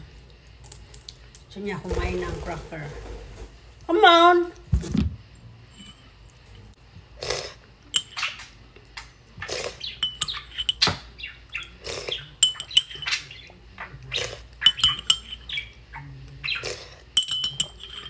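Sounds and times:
spoon clinking ceramic bowl: 8.0 - 8.2, 10.0 - 11.0, 12.4 - 13.2, 14.6 - 15.4, 17.2 - 18.0
bird chirping: 9.8 - 14.0.

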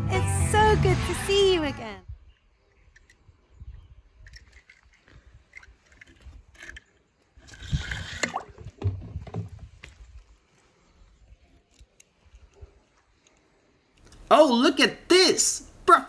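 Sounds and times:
toy car handling clicks and scrapes: 4.2 - 8.3.

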